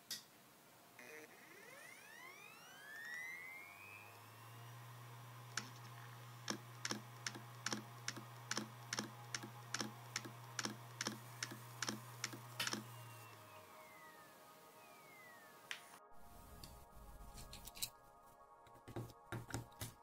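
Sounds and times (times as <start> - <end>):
hard drive motor hum and whine: 1.0 - 15.7
hard drive heads knocking: 5.4 - 13.0.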